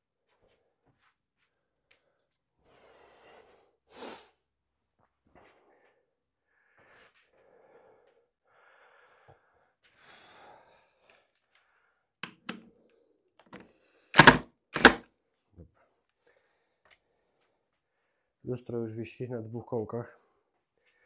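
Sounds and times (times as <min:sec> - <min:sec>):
man breathing heavily: 0:05.4 - 0:11.2.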